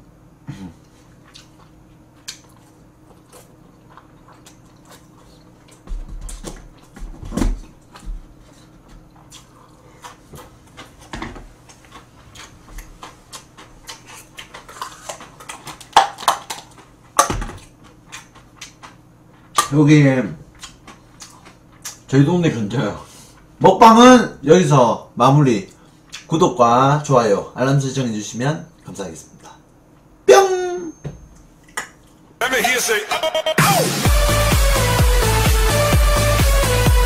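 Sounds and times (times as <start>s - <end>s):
chewing: 0.8s - 7.0s, 7.8s - 17.0s, 17.6s - 19.6s, 20.5s - 22.1s.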